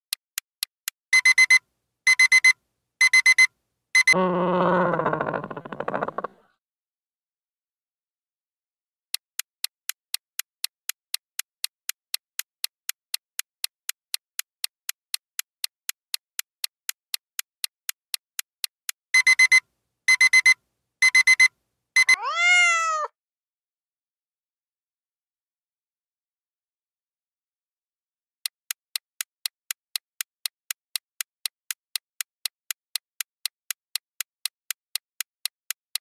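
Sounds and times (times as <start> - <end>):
fast clock ticking: 9.4 - 22.2, 28.7 - 32.0, 32.7 - 35.0.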